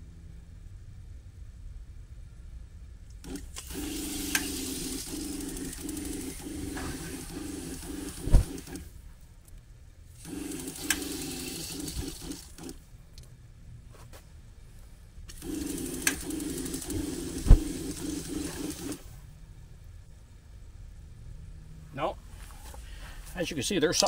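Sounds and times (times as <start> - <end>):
water heater igniter ticking buzz: 3.2 - 8.9, 10.2 - 12.8, 15.3 - 19.1
sharp thump: 8.3 - 8.7.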